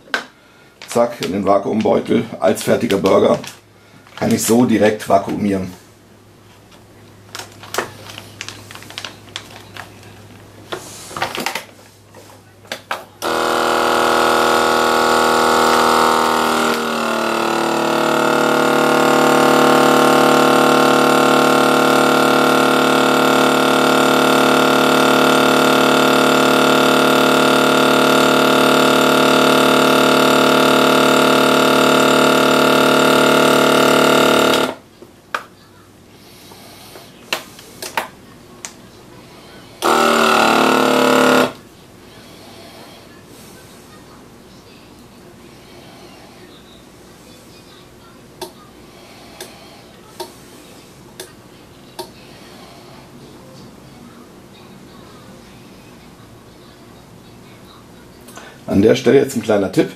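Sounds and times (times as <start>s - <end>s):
vacuum sealer pump droning: 13.2s - 34.9s, 39.2s - 43.7s.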